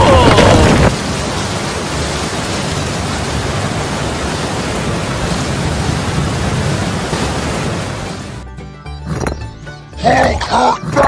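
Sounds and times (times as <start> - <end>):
heavy rain rushing: 0.0 - 8.4.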